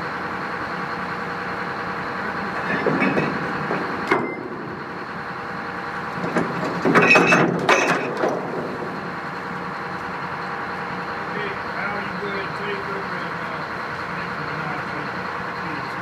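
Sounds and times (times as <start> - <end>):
tugboat engines running: 0.0 - 16.0
knocks and clatter: 2.6 - 4.8, 6.1 - 8.9.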